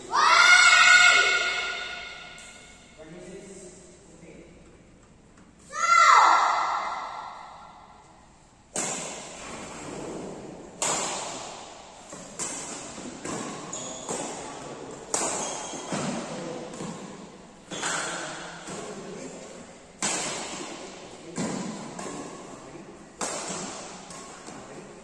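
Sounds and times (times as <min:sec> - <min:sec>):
rackets hitting shuttlecock: 0:06.5 - 0:25.0.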